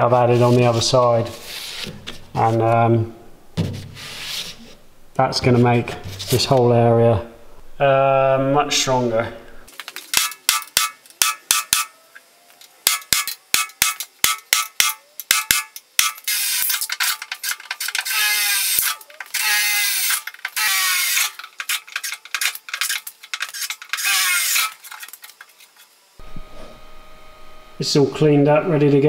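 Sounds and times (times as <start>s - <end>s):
cordless drill boring steel: 15.4s - 25.0s.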